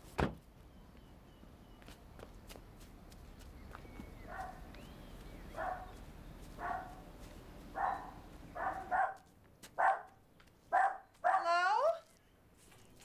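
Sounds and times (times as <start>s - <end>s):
small dog barking: 4.3s - 4.6s, 5.6s - 6.0s, 6.6s - 7.0s, 7.7s - 11.9s.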